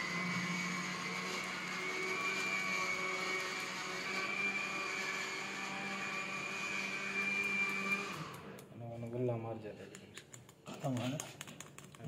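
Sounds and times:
small electric motor whirring: 0:00.0 - 0:08.6.

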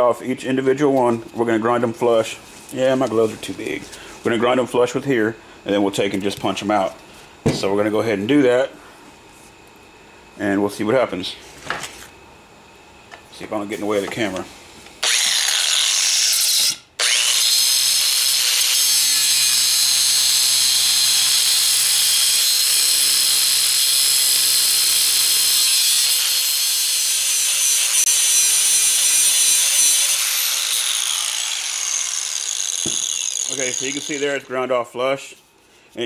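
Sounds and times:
angle grinder grinding metal: 0:15.0 - 0:34.6.

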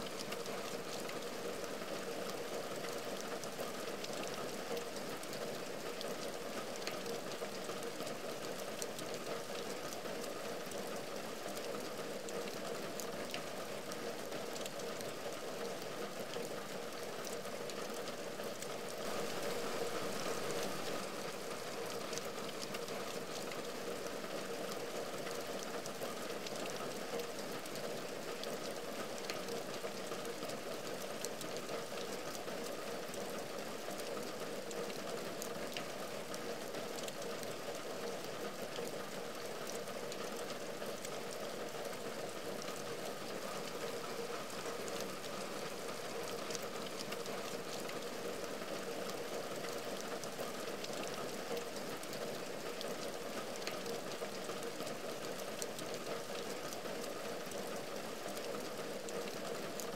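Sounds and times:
rain on a window: 0:00.0 - 0:59.9.

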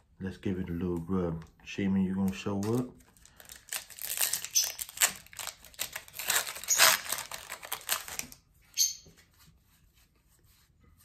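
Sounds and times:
foil pack crinkling: 0:02.2 - 0:08.4.

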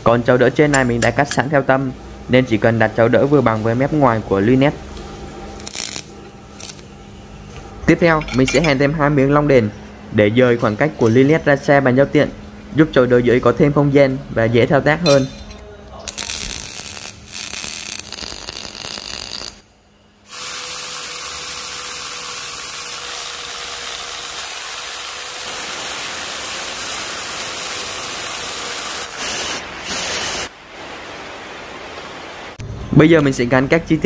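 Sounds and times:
welder crackling: 0:00.5 - 0:01.7, 0:05.5 - 0:06.9, 0:15.1 - 0:19.7, 0:20.3 - 0:30.5
spray paint can hissing: 0:26.3 - 0:30.5.

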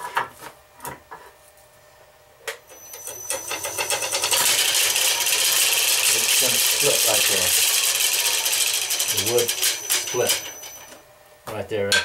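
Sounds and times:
wood lathe whine: 0:02.7 - 0:11.0
wood shaving hiss: 0:02.8 - 0:11.0.

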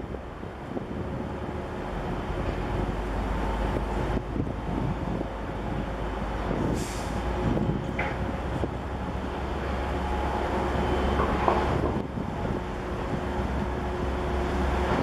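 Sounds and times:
ship engine rumble and hum: 0:00.0 - 0:15.0
wind buffeting microphone: 0:00.0 - 0:15.0
short hiss: 0:06.8 - 0:07.2.

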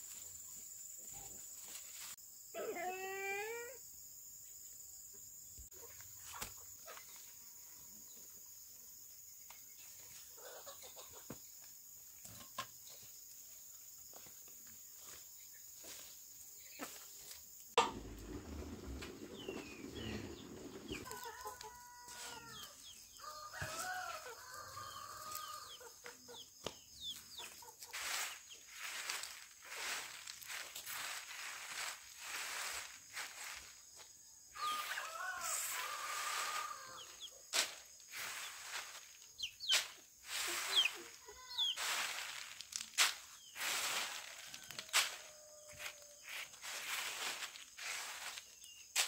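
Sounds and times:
chickens clucking: 0:05.7 - 0:07.4, 0:10.0 - 0:12.8, 0:17.8 - 0:22.4, 0:23.6 - 0:30.6, 0:38.2 - 0:42.4.

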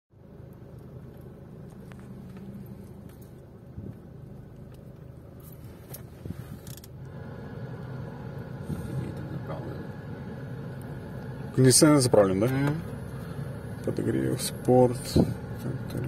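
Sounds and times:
car engine low hum: 0:00.1 - 0:16.0
light ticks and creaks: 0:00.4 - 0:07.2.

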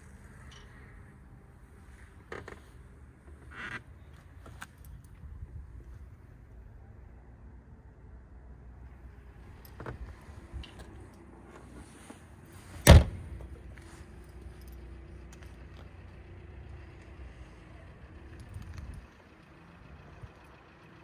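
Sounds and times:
car hood slamming shut: 0:12.8 - 0:13.4.

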